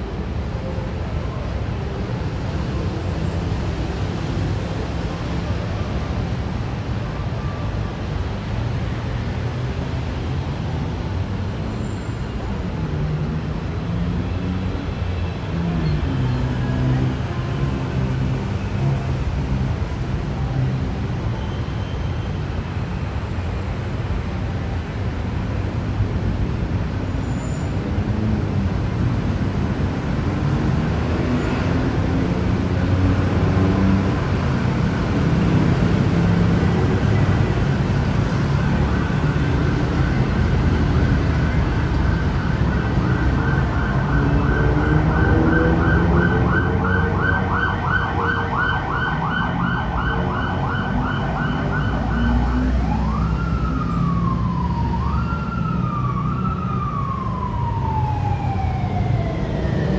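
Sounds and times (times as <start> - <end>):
road traffic: 0.0 - 59.9
emergency vehicle siren: 15.5 - 23.6, 30.4 - 59.9.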